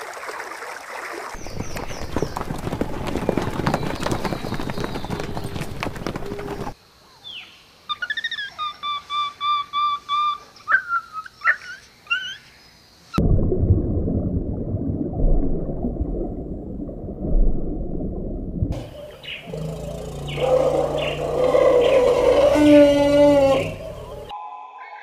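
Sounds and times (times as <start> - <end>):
horse hooves galloping: 1.4 - 6.8
monkey whistled calls: 7.9 - 12.4.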